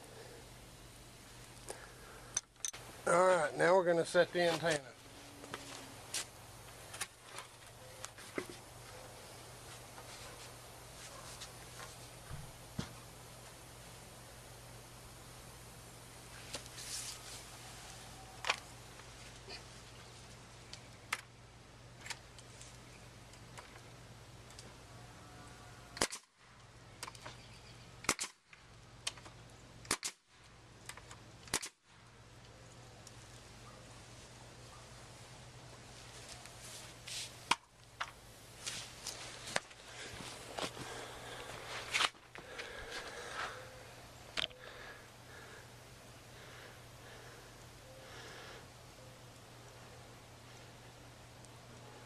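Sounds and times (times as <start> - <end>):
low steady hum: 0.0 - 52.0
faint clicks of nail gun: 26.0 - 26.3
nail gun firing into wood: 26.0 - 26.3, 28.0 - 28.4, 29.1 - 30.2, 31.5 - 31.8.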